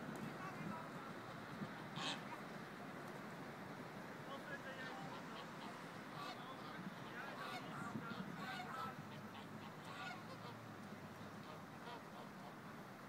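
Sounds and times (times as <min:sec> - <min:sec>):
geese honking: 0:01.8 - 0:02.4, 0:04.8 - 0:10.6, 0:11.4 - 0:12.6.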